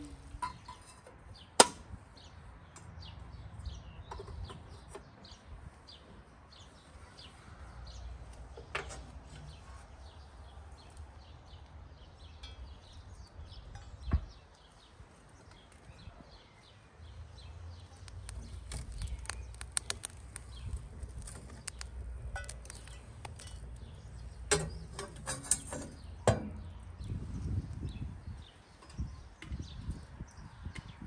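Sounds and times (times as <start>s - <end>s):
birds chirping: 9.5s - 31.0s.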